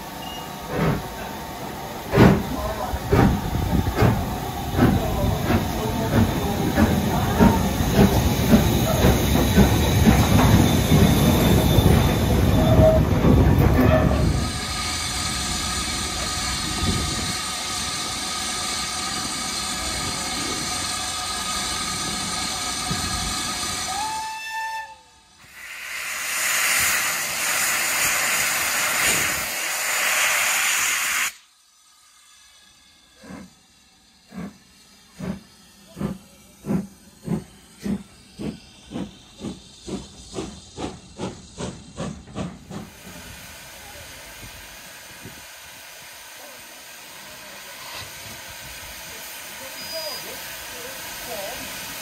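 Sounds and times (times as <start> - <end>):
steam locomotive rumble: 0.0 - 31.4, 32.0 - 52.0
loud steam hiss: 0.0 - 52.0
steam whistle: 23.8 - 26.3.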